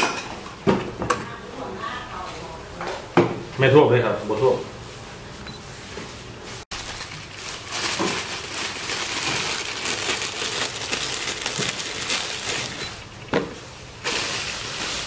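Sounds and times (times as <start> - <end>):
plastic bag crinkling: 6.7 - 13.0, 14.0 - 15.0.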